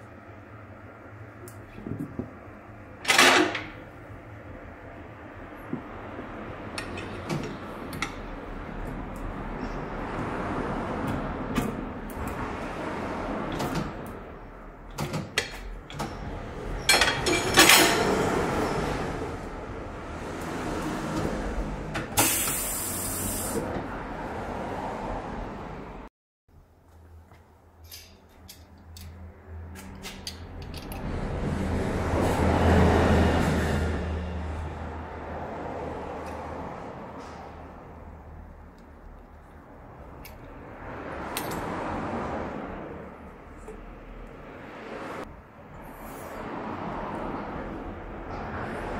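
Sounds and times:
loud metal clank: 16.9 - 18.3
air rushing from tyre: 18.0 - 25.3.

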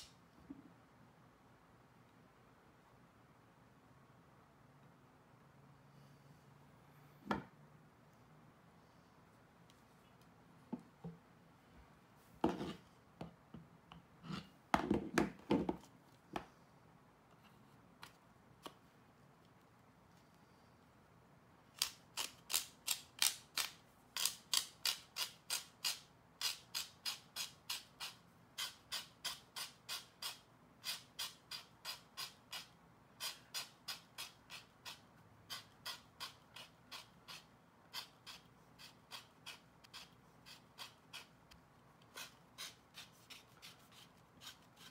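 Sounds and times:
blade scraping leather tip: 21.8 - 41.4.

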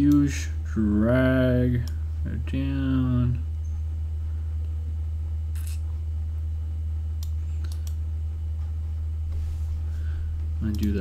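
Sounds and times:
steady low hum: 0.0 - 11.0
computer mouse clicks: 7.2 - 8.0, 10.7 - 11.0.

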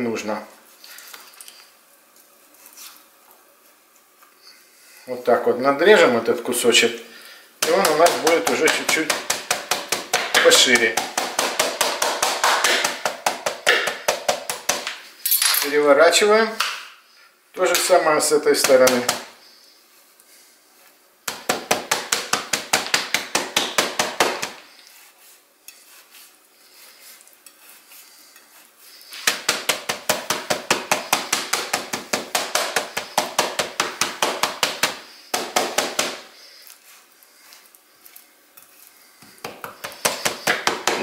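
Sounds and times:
knife chopping meat on glass board: 7.6 - 14.9, 21.3 - 24.6, 29.2 - 36.3, 39.2 - 41.0.

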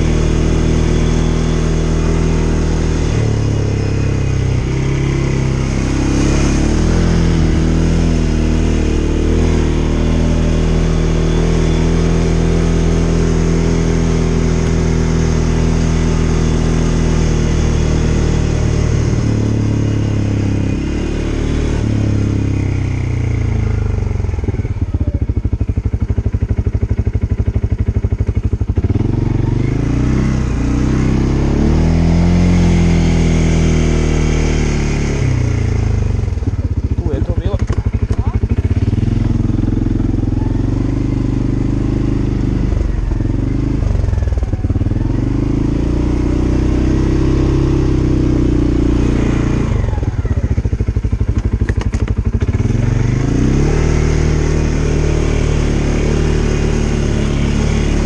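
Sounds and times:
atv engine revving: 0.0 - 58.0.

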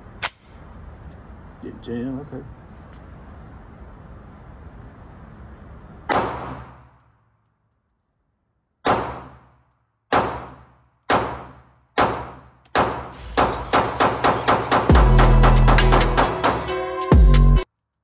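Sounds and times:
pistol shots with ringing echo: 6.1 - 7.0, 8.8 - 14.9.

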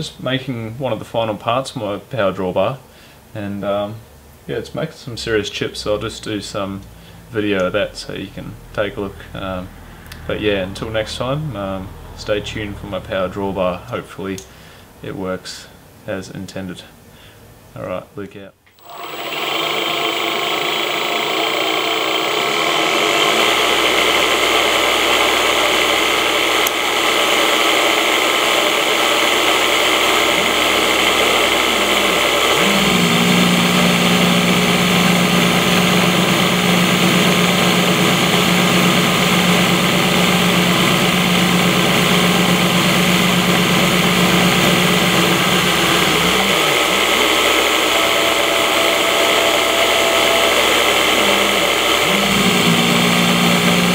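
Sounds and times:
milling machine cutting metal: 18.7 - 53.9.

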